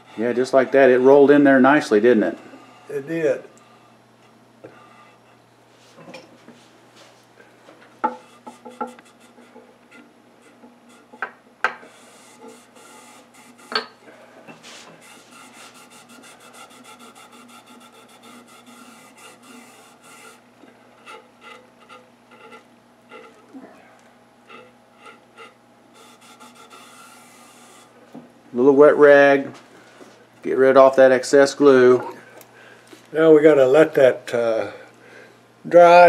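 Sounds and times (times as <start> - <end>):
rag rubbing on wood: 8.1 - 13.8, 14.6 - 23.5, 24.5 - 28.0.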